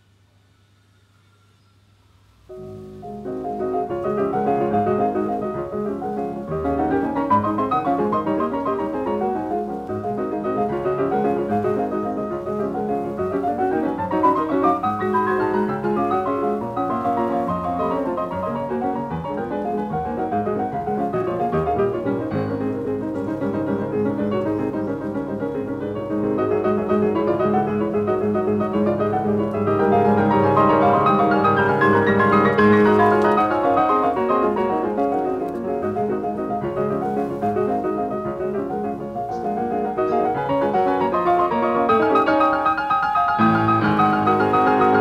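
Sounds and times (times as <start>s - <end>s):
background piano music: 2.4s - 45.0s.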